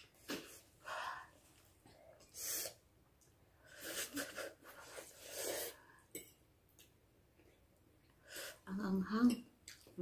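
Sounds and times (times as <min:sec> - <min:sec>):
person hissing breaths: 0:02.3 - 0:02.8
slurping noodles: 0:03.7 - 0:05.9.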